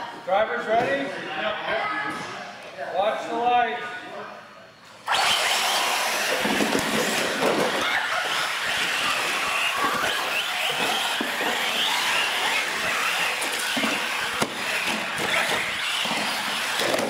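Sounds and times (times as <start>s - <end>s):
toy truck motors whining: 5.0s - 17.0s.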